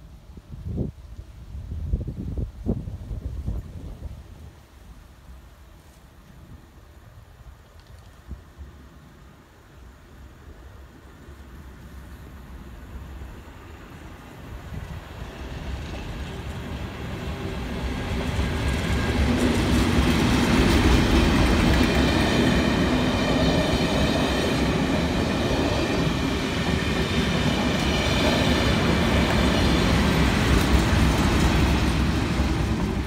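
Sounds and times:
diesel locomotive engine drone: 8.6s - 33.0s
train wheels rumbling: 13.4s - 33.0s.

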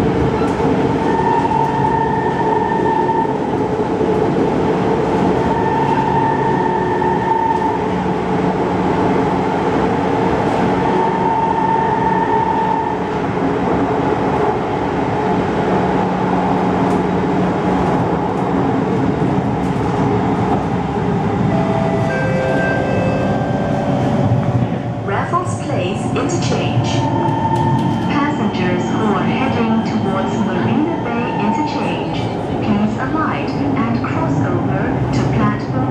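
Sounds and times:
train whining tones: 0.0s - 3.7s, 5.3s - 8.1s, 10.8s - 13.2s, 21.2s - 33.1s
metro train rumbling: 0.0s - 35.9s.

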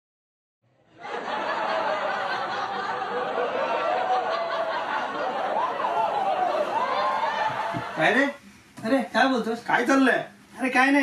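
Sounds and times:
laugh track: 1.0s - 8.3s.

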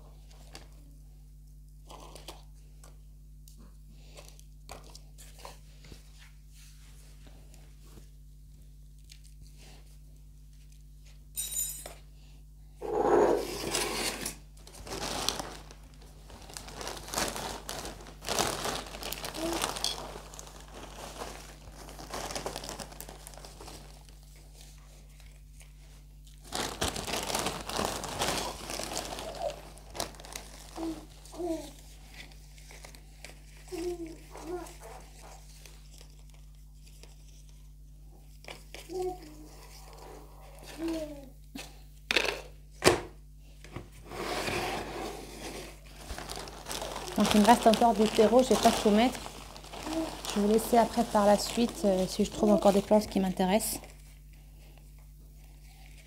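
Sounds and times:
plastic bag crinkling: 14.6s - 37.5s, 45.3s - 56.0s.

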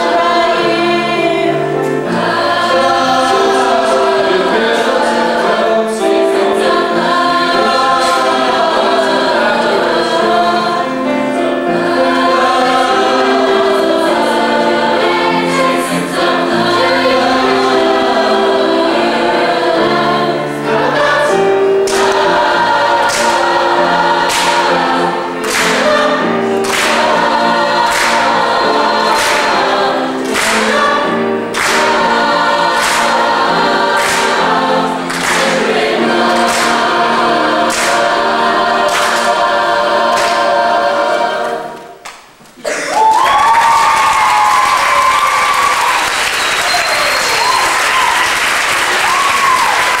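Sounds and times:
chorus singing: 0.0s - 50.0s
audience applause and cheering: 42.7s - 50.0s.

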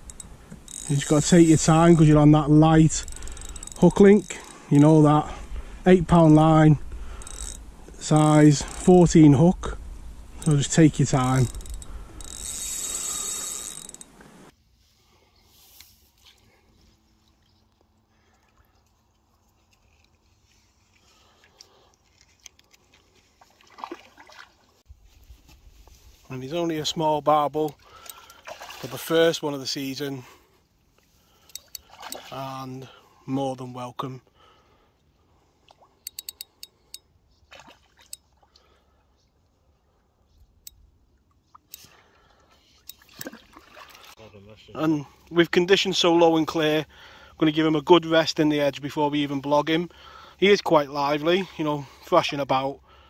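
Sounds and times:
small clicks of fishing reel: 0.0s - 1.9s, 3.0s - 4.7s, 7.1s - 8.0s, 8.7s - 8.9s, 11.2s - 14.4s, 31.4s - 31.9s, 36.0s - 37.0s, 42.6s - 43.3s
rush of water from landing net: 28.4s - 29.2s, 43.1s - 44.2s
fish splashing at surface: 43.0s - 44.2s.

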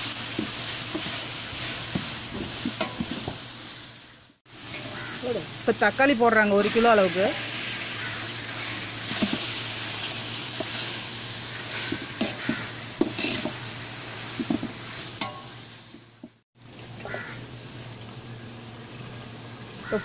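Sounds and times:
tomatoes sizzling in hot oil: 0.0s - 20.0s
metal ladle scraping a pot: 11.5s - 13.6s.

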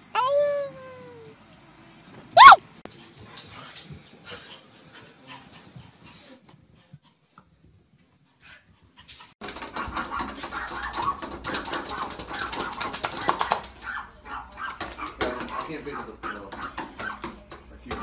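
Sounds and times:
paws tapping and scratching on glass: 9.0s - 18.0s.

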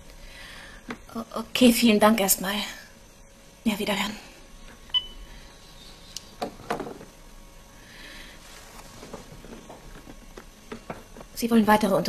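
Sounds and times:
short high beep: 5.0s - 5.2s.

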